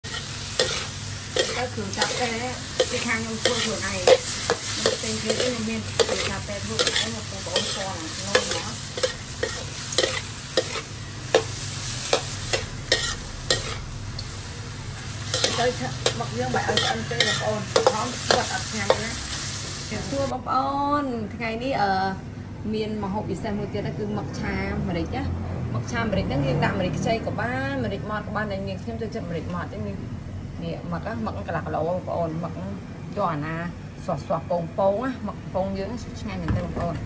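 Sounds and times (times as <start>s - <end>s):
spatula scraping a wok: 0.0s - 14.4s, 15.0s - 20.3s
oil sizzling: 0.0s - 20.3s.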